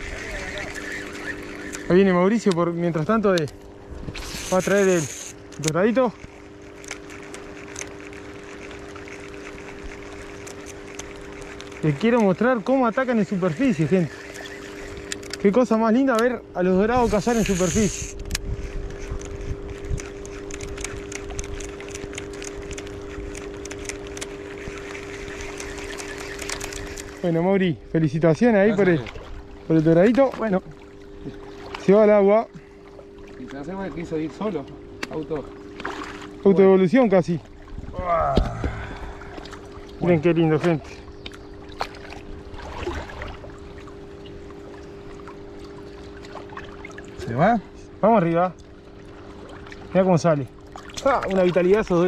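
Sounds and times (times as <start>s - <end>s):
shallow water sloshing and splashing: 0.0s - 15.5s, 18.4s - 27.4s, 28.5s - 52.0s
two-tone hum: 0.0s - 52.0s.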